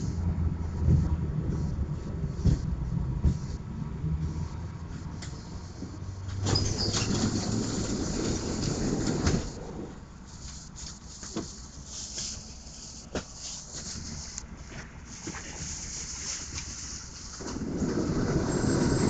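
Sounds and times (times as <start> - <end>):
tram rumbling: 0.0 - 12.1, 16.7 - 19.0.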